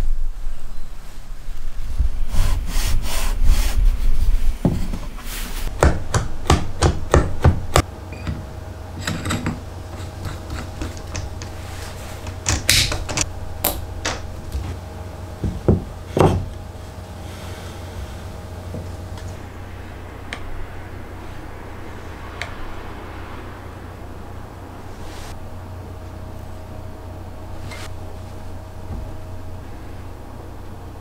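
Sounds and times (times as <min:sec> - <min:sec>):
wooden pieces knocking and rubbing: 0:04.6 - 0:14.8, 0:15.4 - 0:16.7.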